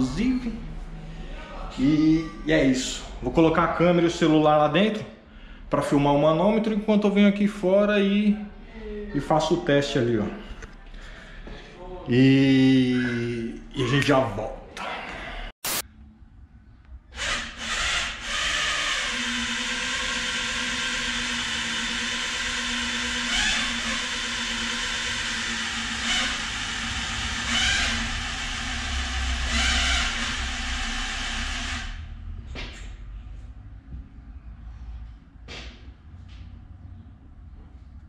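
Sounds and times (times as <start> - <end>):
electric drill running: 17.2 - 32.1.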